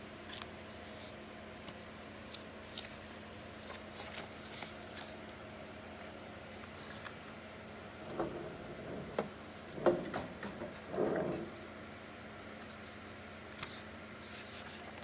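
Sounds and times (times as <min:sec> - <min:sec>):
paper sheets rustling: 0:00.2 - 0:05.2, 0:06.0 - 0:07.3, 0:13.5 - 0:15.0
press carriage knocks and clunks: 0:08.1 - 0:11.5.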